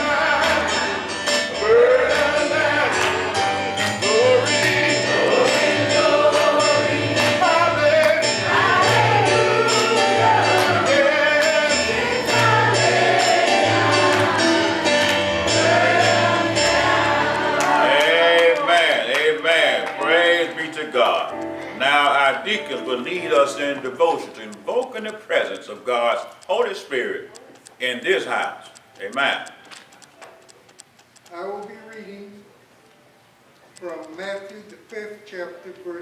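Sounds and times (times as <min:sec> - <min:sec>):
gospel voices singing: 0:00.0 - 0:27.1
percussion beat: 0:00.0 - 0:32.1.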